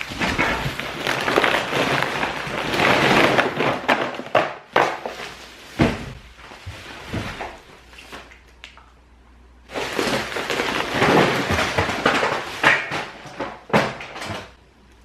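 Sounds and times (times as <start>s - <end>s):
plastic bag crinkling: 0.0s - 5.9s, 9.7s - 13.3s.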